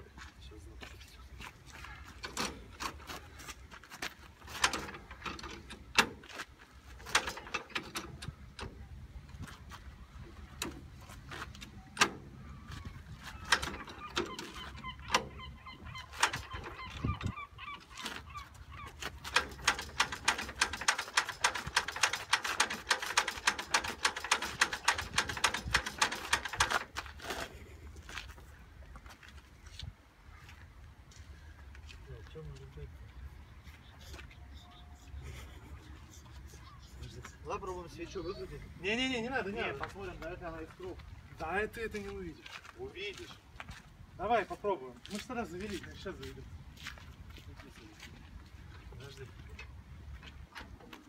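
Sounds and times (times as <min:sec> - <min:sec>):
tractor engine cranking clanks: 0:02.2 - 0:03.0, 0:04.4 - 0:08.9, 0:10.4 - 0:12.4, 0:13.1 - 0:18.0, 0:18.9 - 0:27.5
fast clicking of crank: 0:19.2 - 0:27.3.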